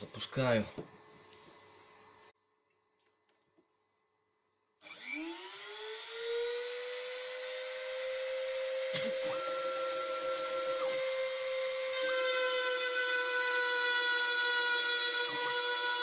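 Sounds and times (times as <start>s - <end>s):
router spindle whine: 4.8s - 16.0s
stepper motors whining: 4.9s - 16.0s.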